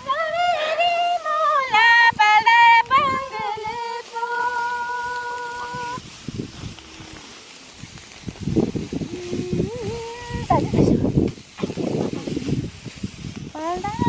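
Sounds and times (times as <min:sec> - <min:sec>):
woman singing: 0:00.0 - 0:06.0, 0:09.2 - 0:10.8, 0:13.6 - 0:14.0.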